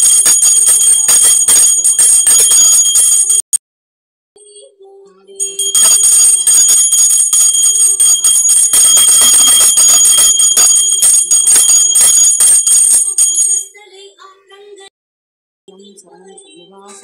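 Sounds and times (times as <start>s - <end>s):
handheld bell ringing: 0.0s - 3.6s, 5.4s - 13.8s.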